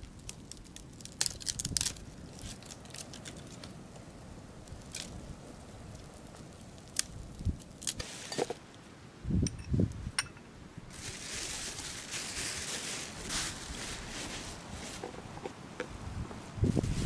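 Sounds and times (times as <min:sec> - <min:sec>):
campfire crackling and popping: 0:00.0 - 0:10.0.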